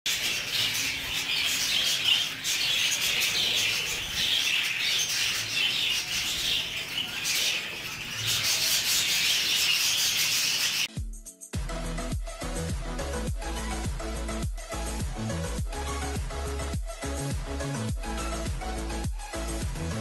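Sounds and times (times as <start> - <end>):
budgerigars chattering and chirping: 0.1 - 10.9.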